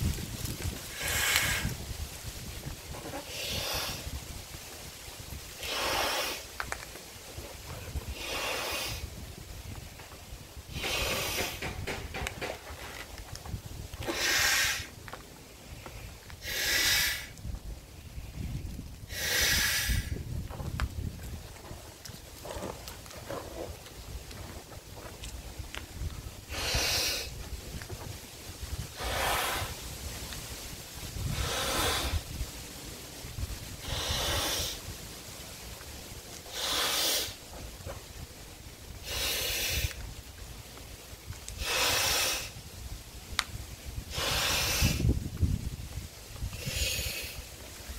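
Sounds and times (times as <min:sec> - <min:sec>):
man blowing up balloon: 0:00.9 - 0:01.8, 0:03.2 - 0:04.1, 0:05.6 - 0:06.5, 0:08.1 - 0:09.1, 0:10.7 - 0:11.8, 0:14.0 - 0:14.9, 0:16.4 - 0:17.3, 0:19.1 - 0:20.2, 0:26.5 - 0:27.4, 0:28.9 - 0:29.8, 0:31.2 - 0:32.3, 0:33.8 - 0:34.8, 0:36.5 - 0:37.4, 0:39.0 - 0:40.0, 0:41.6 - 0:42.6, 0:44.0 - 0:45.2, 0:46.5 - 0:47.5.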